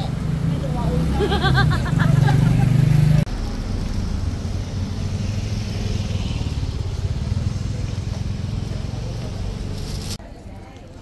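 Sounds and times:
vehicle engine running: 0.0 - 10.2.

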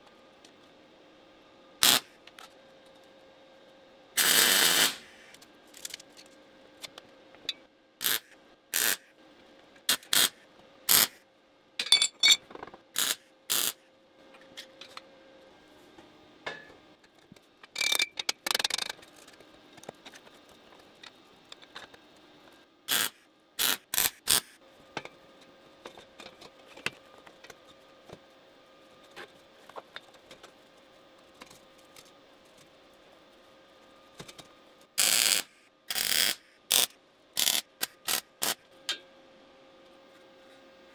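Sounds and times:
metal tools clicking and clanking: 11.8 - 12.6, 17.7 - 19.0.

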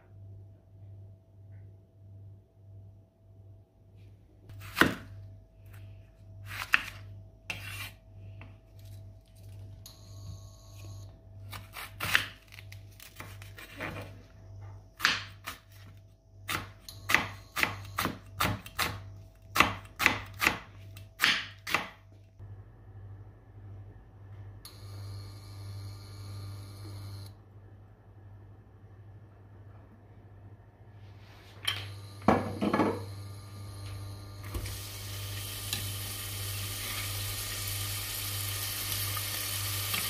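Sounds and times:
knife slicing onion: 4.5 - 5.2, 6.4 - 8.0, 11.4 - 13.9, 14.9 - 22.0.

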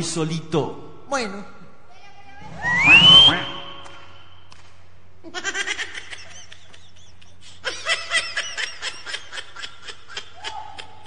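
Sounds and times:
high-pitched laughter: 5.3 - 11.0.

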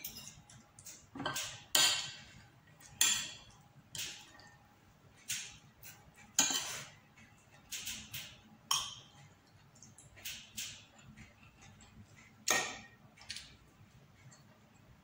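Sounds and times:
cutlery clinking on plate: 6.3 - 7.0.

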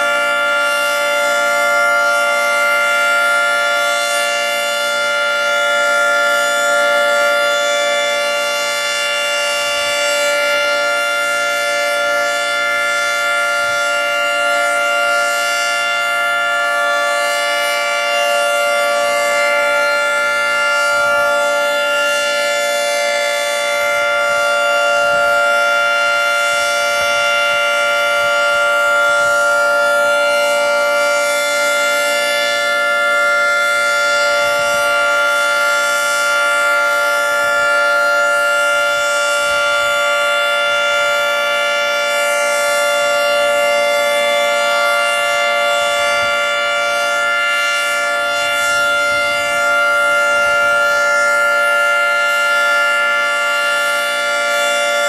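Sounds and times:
three-tone rotating siren: 0.0 - 55.0.

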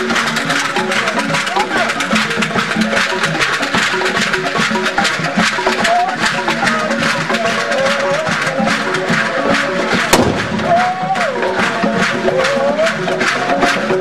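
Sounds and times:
crowd voices and singers: 0.0 - 14.0
drumming and percussion: 0.0 - 14.0
sharp crack: 10.1 - 10.7.

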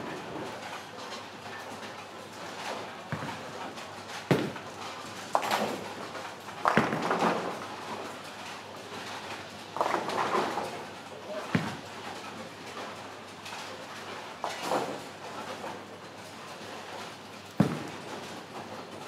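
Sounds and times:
bowling balls rolling: 9.8 - 10.7, 17.6 - 18.8
bowling pins crashing: 17.6 - 18.4.

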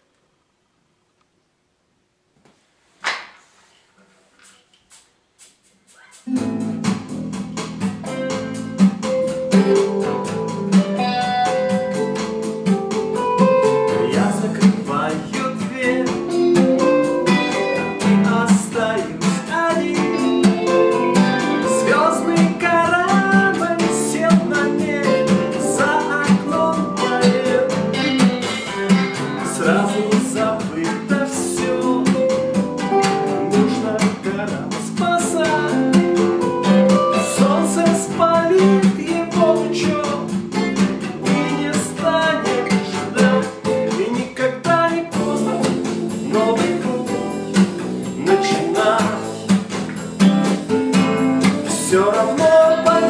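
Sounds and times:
backing track through small speaker: 4.4 - 53.0
acoustic guitar strummed: 6.2 - 53.0
man singing: 13.6 - 49.6, 51.0 - 53.0.

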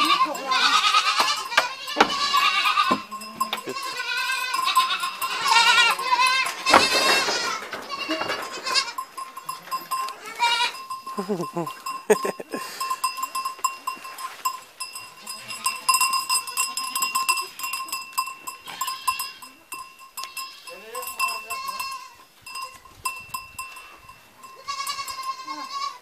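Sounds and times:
steady high ringing tone: 0.0 - 7.2, 8.8 - 25.4
goats bleating: 0.0 - 12.8, 18.5 - 19.6, 20.2 - 22.3, 23.8 - 26.0
knocks and shuffling: 0.0 - 15.2.

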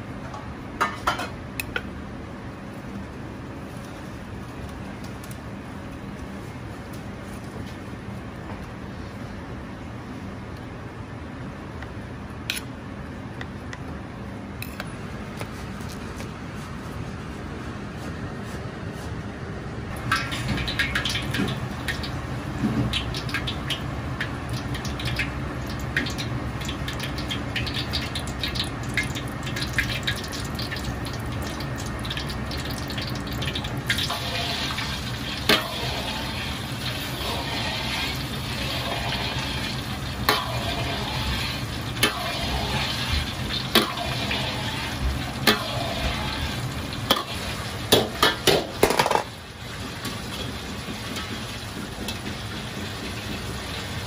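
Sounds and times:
deep-frying sizzling crackle: 19.9 - 54.0.

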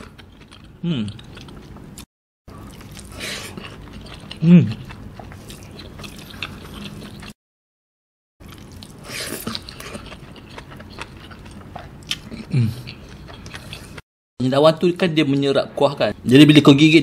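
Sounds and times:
wet chewing: 8.4 - 14.0.

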